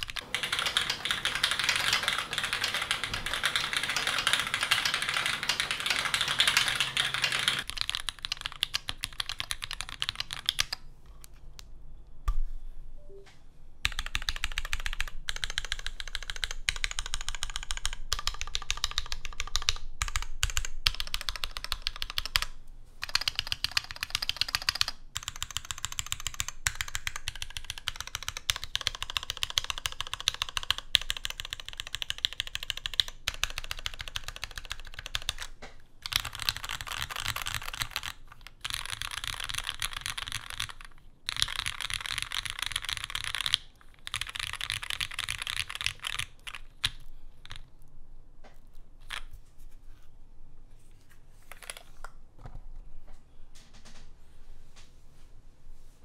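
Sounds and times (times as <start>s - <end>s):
typing on mechanical keyboard: 0.0s - 10.8s, 13.8s - 47.7s.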